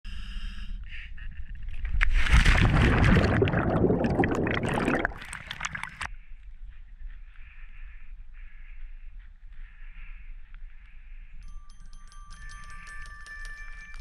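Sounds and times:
underwater air bubbles gurgling: 2.3 - 6.1.

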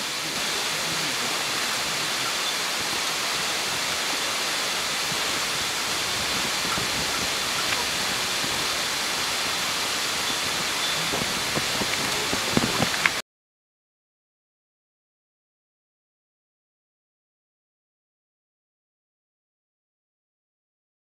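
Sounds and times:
running water rushing: 0.0 - 13.2
faint clicks: 10.3 - 13.2.

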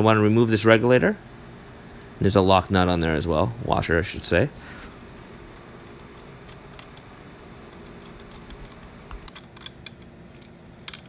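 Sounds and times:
faint steady hum: 0.0 - 11.0
small metal parts clicking: 5.5 - 7.1, 7.7 - 11.0.

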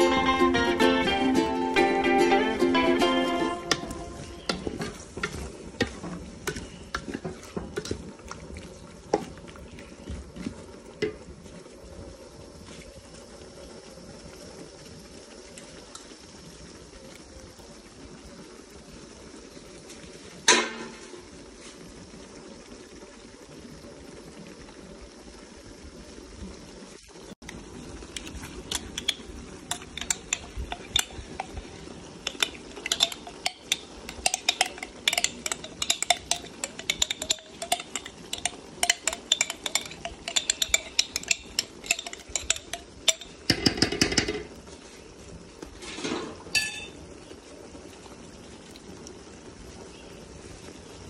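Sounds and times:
low background noise: 0.0 - 51.0
fork clinking against glass and metal: 28.7 - 44.3.

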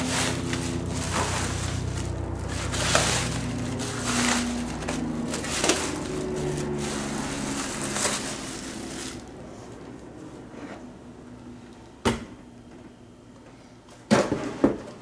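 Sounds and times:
plastic wrap crinkling: 0.0 - 9.4.

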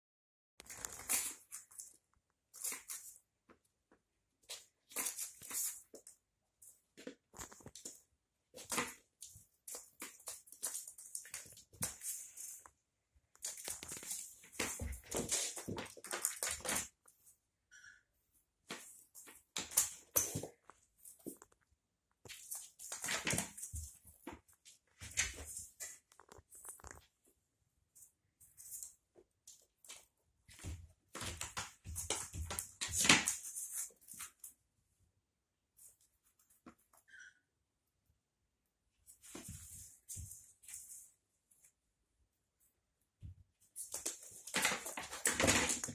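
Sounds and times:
paper ball skittering and crackling: 0.6 - 3.2, 7.0 - 17.1
cat paws scuffling: 13.4 - 17.4.

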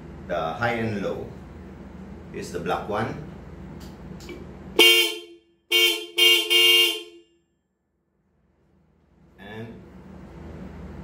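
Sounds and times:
electric twin horn blasts: 4.8 - 7.4.

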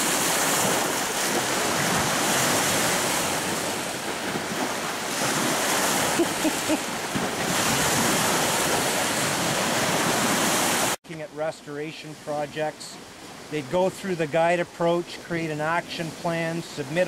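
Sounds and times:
lake waves breaking on rocks: 0.0 - 11.0.

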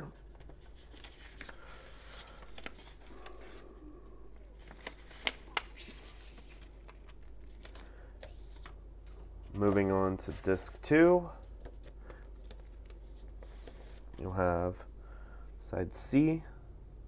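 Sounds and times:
paper sleeves rustling: 0.1 - 3.6, 4.6 - 14.4.

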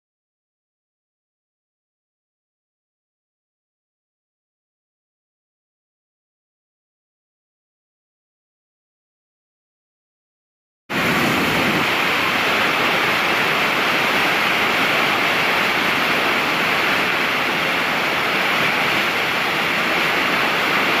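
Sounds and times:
waterfall rushing: 10.9 - 21.0.

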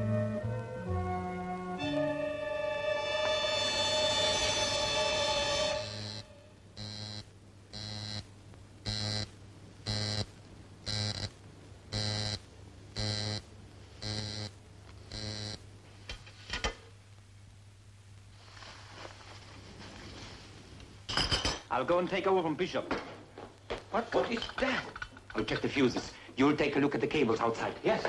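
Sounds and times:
alarm buzzer: 3.3 - 8.3, 8.9 - 9.3, 9.9 - 10.3, 10.9 - 11.3, 12.0 - 12.4, 13.0 - 13.4, 14.0 - 14.5, 15.1 - 15.6.

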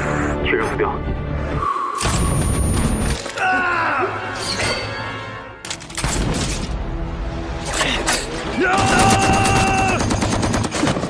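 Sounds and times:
dramatic background music: 0.0 - 11.0
gunshots: 8.7 - 11.0.

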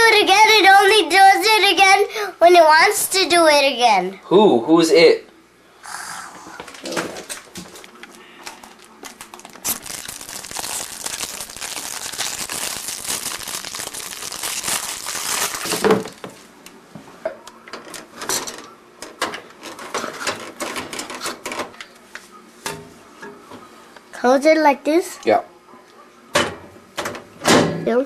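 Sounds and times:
cellophane crinkling: 7.3 - 16.2.

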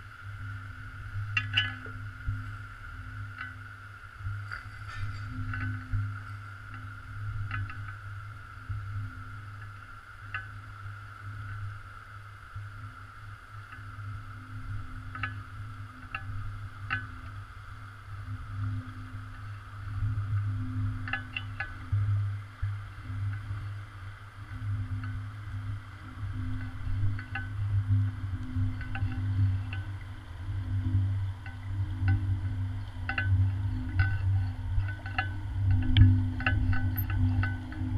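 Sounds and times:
underwater low rumble: 0.0 - 37.9
light clicks: 32.8 - 37.6.

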